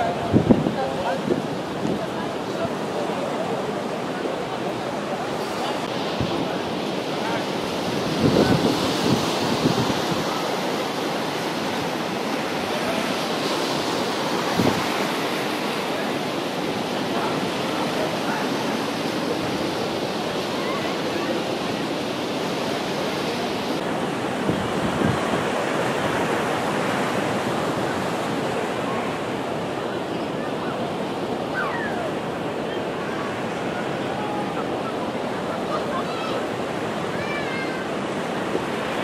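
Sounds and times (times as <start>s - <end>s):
wind buffeting microphone: 0.0s - 2.8s, 5.2s - 15.4s, 23.7s - 26.4s
surf washing onto beach: 0.0s - 39.0s.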